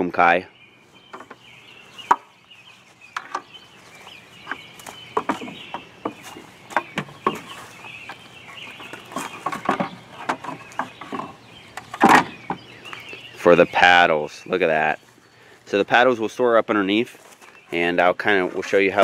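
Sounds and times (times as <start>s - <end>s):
birds calling: 0.0s - 19.0s
footsteps: 0.8s - 11.4s, 17.0s - 19.0s
paddles knocking on wooden shelf: 4.4s - 8.2s, 8.8s - 12.6s.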